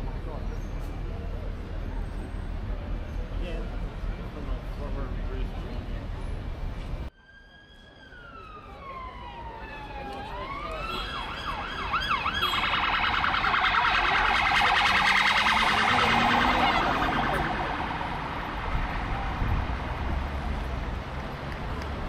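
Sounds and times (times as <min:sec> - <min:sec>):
police siren wailing and yelping: 0:07.2 - 0:19.8.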